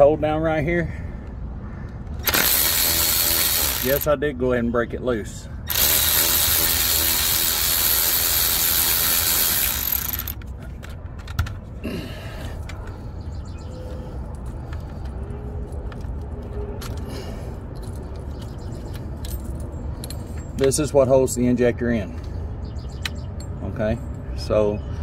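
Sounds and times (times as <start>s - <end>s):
cordless ratchet running: 2.2s - 4.1s, 5.7s - 10.4s.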